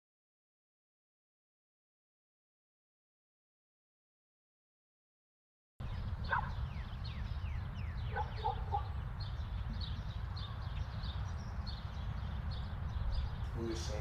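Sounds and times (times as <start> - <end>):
birds chirping: 5.8 - 14.0.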